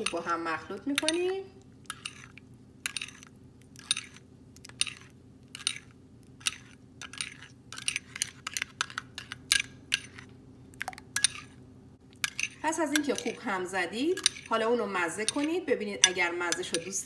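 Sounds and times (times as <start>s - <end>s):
metal spoon clinking ceramic bowl: 1.0s - 1.3s, 12.2s - 13.4s, 14.1s - 14.5s, 15.2s - 17.0s.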